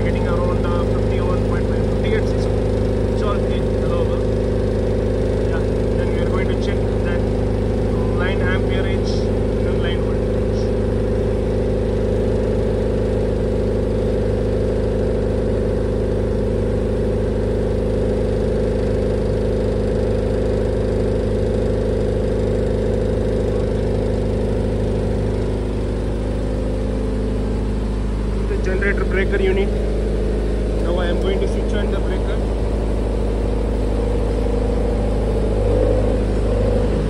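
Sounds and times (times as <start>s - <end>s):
diesel generator running: 0.0s - 37.0s.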